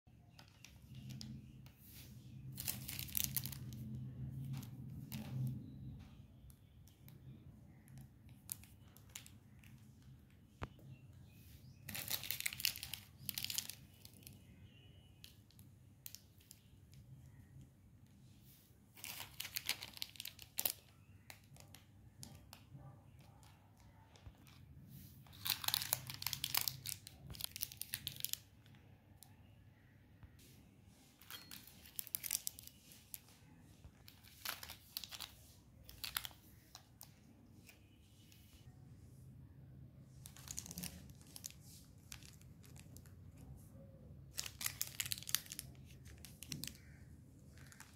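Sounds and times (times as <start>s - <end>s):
plastic wrappers crackling: 0.4s - 5.5s, 8.3s - 10.0s, 11.7s - 16.7s, 19.0s - 22.5s, 25.2s - 28.7s, 31.2s - 33.4s, 34.0s - 37.9s, 40.1s - 43.5s, 44.3s - 47.9s.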